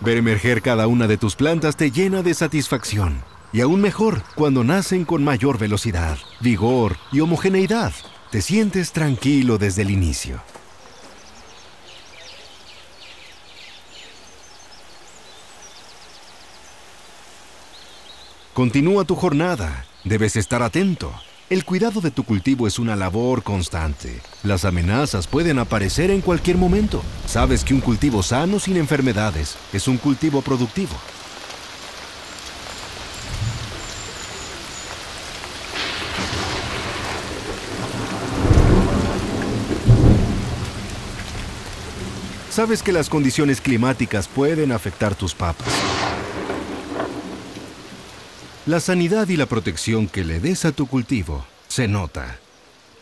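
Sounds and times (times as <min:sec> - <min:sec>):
birds chirping: 0:00.0 - 0:53.0
rain falling: 0:00.0 - 0:53.0
soft background hiss: 0:00.0 - 0:53.0
thunder rumbling: 0:24.5 - 0:48.7.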